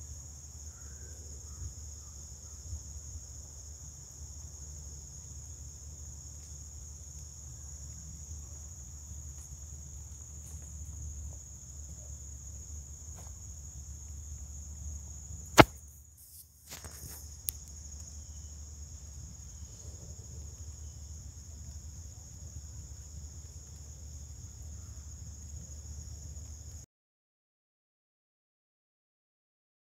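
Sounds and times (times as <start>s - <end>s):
insects chirping: 0.0s - 26.9s
sharp loud click: 15.6s - 15.8s.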